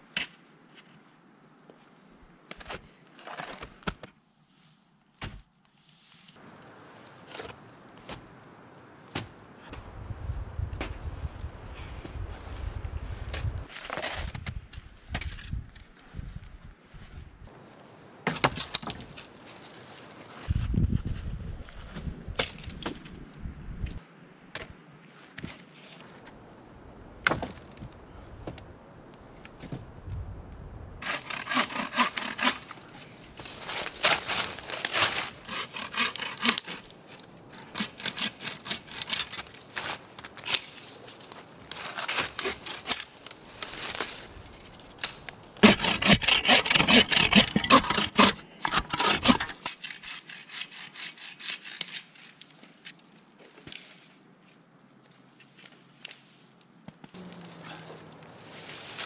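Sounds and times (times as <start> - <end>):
saw cutting branches: 31.0 - 40.8, 41.6 - 52.5, 57.2 - 59.0.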